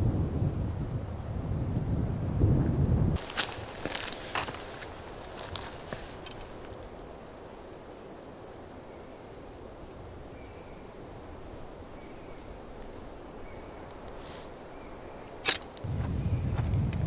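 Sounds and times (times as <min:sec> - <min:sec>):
wind rumble on microphone: 0:00.0 - 0:14.2, 0:14.8 - 0:17.0
wind hiss: 0:00.0 - 0:17.0
sharp click: 0:15.4 - 0:15.8.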